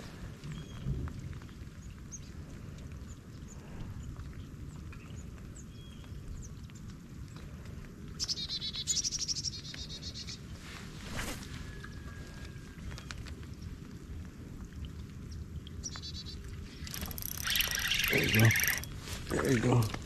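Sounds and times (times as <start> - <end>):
light rain on water: 0.0 - 20.0
birds chirping: 15.3 - 20.0
bird trill: 16.1 - 19.0.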